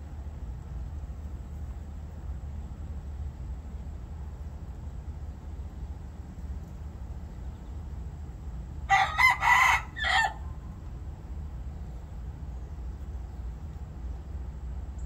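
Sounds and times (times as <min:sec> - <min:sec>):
rooster crowing: 0:08.8 - 0:10.6.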